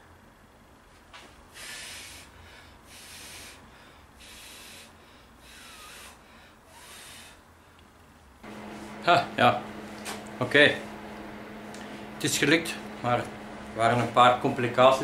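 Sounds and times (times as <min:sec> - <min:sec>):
person blowing air: 0:01.5 - 0:07.5.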